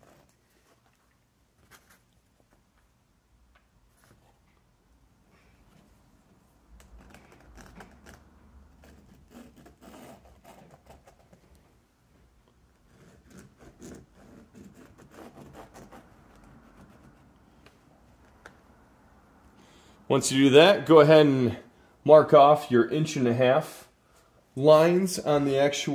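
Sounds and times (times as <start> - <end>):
pen scratching on fabric: 7.1 - 11.4, 12.9 - 17.4.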